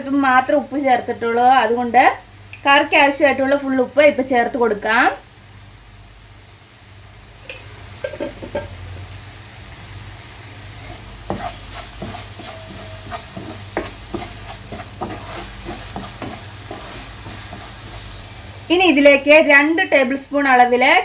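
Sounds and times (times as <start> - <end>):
low sizzle: 0.0 - 21.0
spoon stirring and scraping a pan: 10.6 - 18.2.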